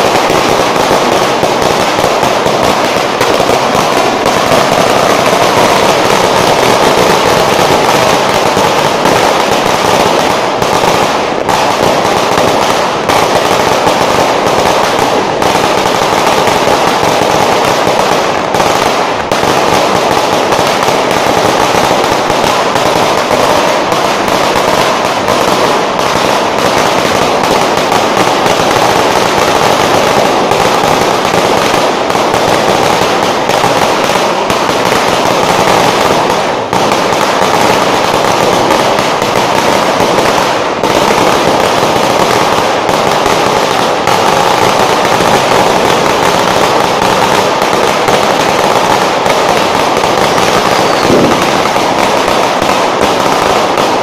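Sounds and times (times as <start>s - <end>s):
firecrackers going off: 0.0s - 54.0s.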